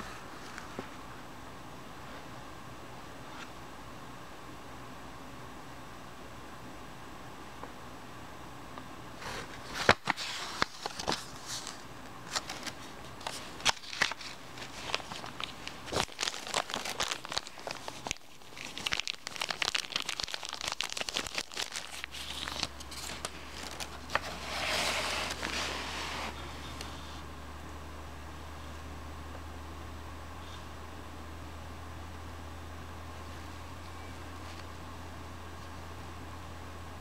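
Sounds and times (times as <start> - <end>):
packaging crinkling and rustling: 9.2 - 26.9.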